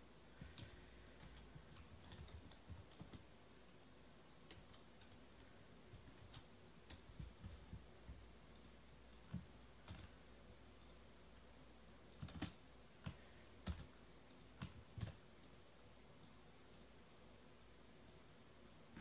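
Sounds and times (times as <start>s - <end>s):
low steady hum: 0.0s - 19.0s
faint clicks and light knocks: 0.3s - 3.3s, 4.4s - 10.2s, 12.1s - 17.0s.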